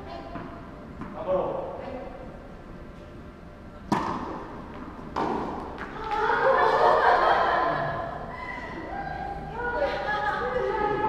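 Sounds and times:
echoing ball impact: 3.9s - 6.0s
tennis racket striking ball: 3.9s - 6.0s.

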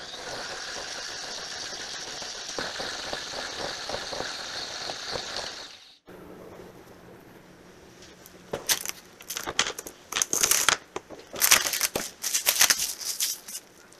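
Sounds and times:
stand mixer motor whirring: 0.0s - 6.0s
quiet steady hum: 0.0s - 13.9s.

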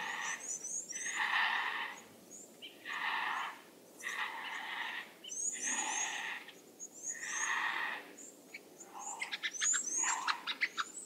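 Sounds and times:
small birds chirping: 0.0s - 11.0s
vulture rasping calls: 1.0s - 2.0s.

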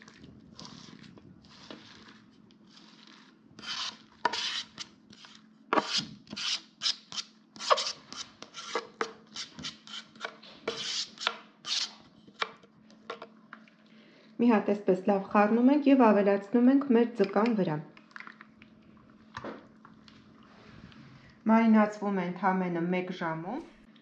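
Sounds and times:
knife scraping a cutting board: 0.6s - 12.5s.

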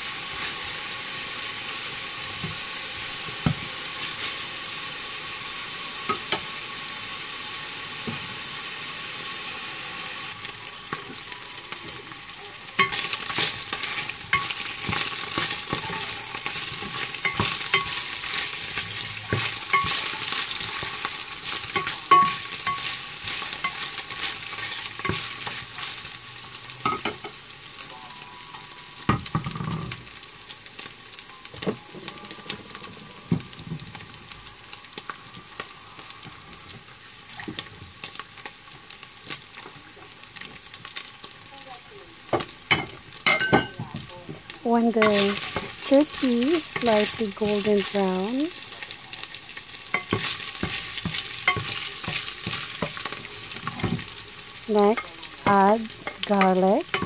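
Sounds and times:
meat sizzling in hot oil: 0.0s - 57.0s
spatula scraping and knocking pan: 12.8s - 25.7s, 49.9s - 54.1s, 54.8s - 57.0s.

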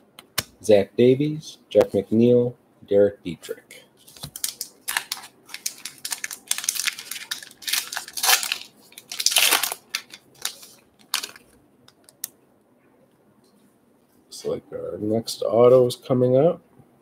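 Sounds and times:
wrapper crinkling and ripping: 4.0s - 12.3s.

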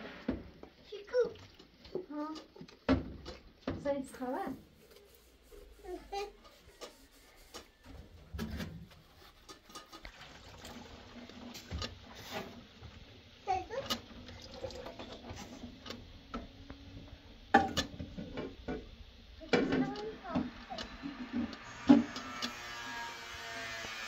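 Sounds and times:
tap water running into sink: 9.7s - 16.8s.

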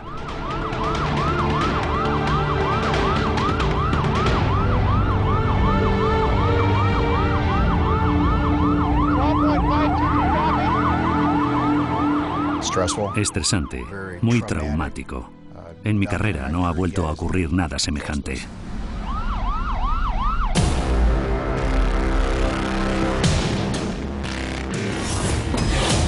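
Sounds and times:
police siren yelping: 0.0s - 14.7s, 19.0s - 20.7s.

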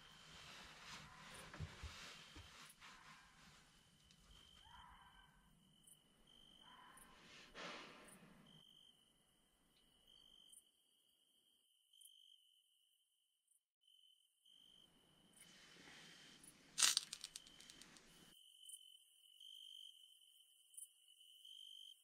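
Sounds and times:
crickets chirping: 4.0s - 7.2s, 8.3s - 13.1s, 13.8s - 22.0s
handling rustling: 16.8s - 18.1s.

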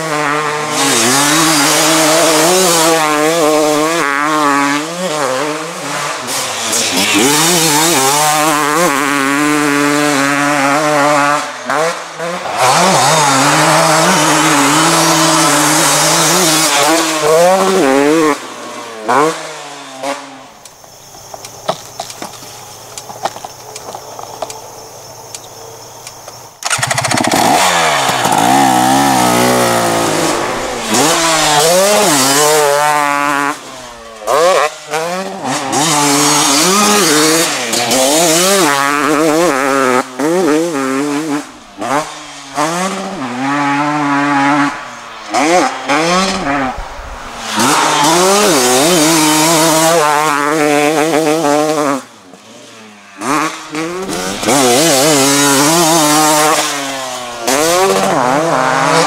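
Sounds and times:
two-stroke motocross bike revving: 0.0s - 23.8s, 25.4s - 59.0s.

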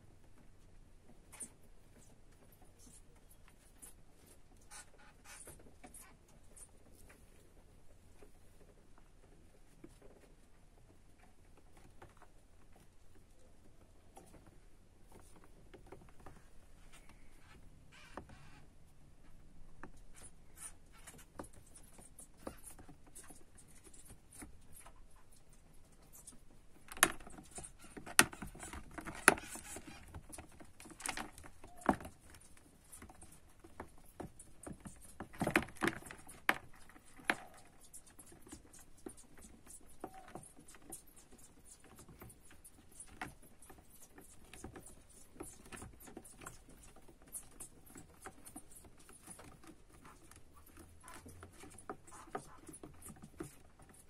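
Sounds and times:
hamster claws scrabbling on plastic: 26.1s - 54.0s.

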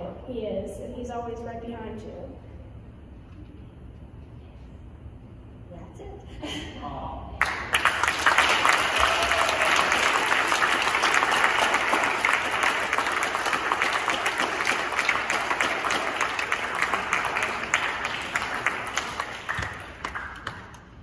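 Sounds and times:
audience applauding: 7.4s - 21.0s.

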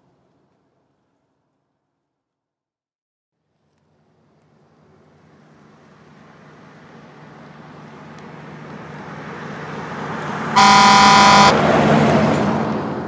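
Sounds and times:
vehicle road noise: 3.9s - 13.0s
vehicle horn blast: 10.6s - 11.6s.

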